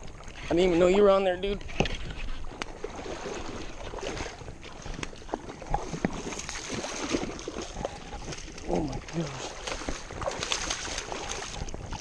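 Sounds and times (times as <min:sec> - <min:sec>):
running river water: 0:00.0 - 0:12.0
fish splashing at the surface: 0:02.4 - 0:12.0.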